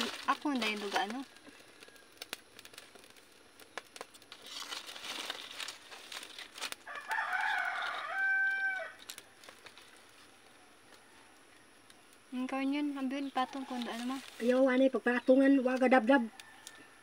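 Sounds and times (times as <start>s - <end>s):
dry sticks rustling and clicking: 0.0s - 12.2s, 12.9s - 14.7s, 15.7s - 16.8s
rooster crowing: 6.8s - 9.4s, 10.4s - 11.8s, 16.3s - 17.0s.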